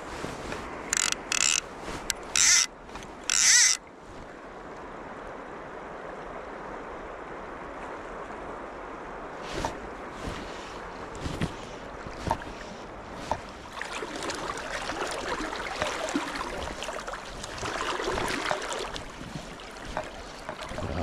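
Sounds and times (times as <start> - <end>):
river water rushing: 0.0 - 21.0
sharp clicks: 0.9 - 3.8.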